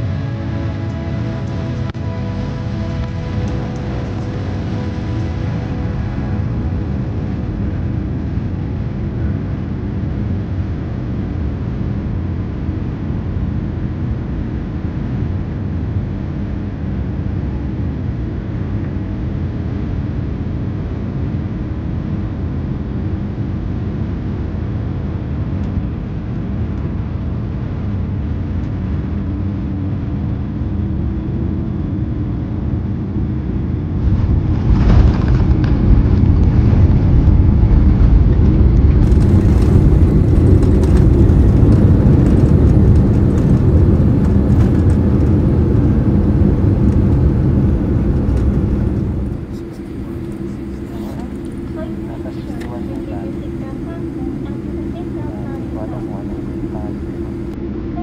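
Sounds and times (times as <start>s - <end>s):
airliner engines and airflow rumble: 0.0s - 58.0s
jet wheels touching down: 39.0s - 57.6s.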